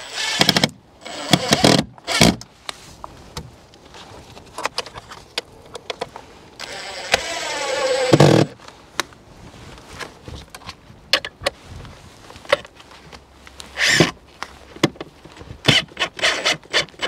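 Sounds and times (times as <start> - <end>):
cordless drill driving screw: 0.0 - 2.4, 6.6 - 8.6, 13.8 - 14.1, 15.6 - 17.0.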